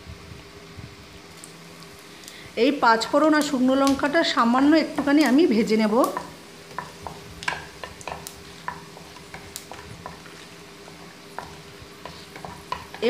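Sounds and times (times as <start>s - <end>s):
chillies sizzling in oil: 0.0s - 13.0s
wooden spatula stirring: 3.4s - 13.0s.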